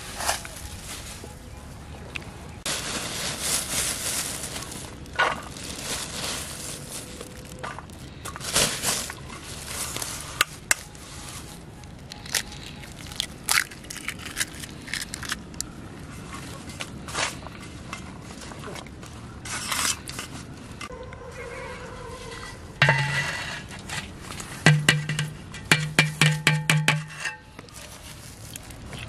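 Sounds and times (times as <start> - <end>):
plastic bag crinkling: 2.6 - 15.7, 27.6 - 29.0
eggs cracking: 12.2 - 15.7.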